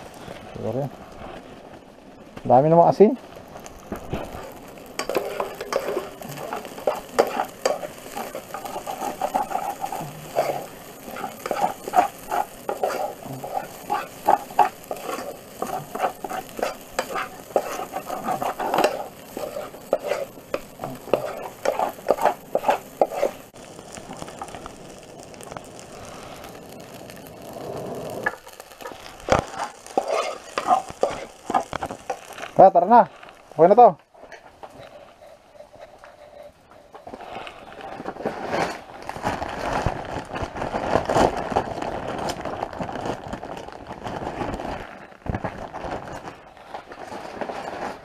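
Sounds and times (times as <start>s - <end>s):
food sizzling: 0.0s - 48.0s
spoon scraping metal saucepan: 5.0s - 23.5s, 29.5s - 32.2s.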